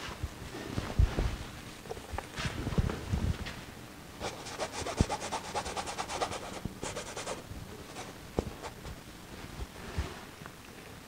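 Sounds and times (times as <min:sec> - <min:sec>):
paintbrush scrubbing on canvas: 0:04.2 - 0:09.0.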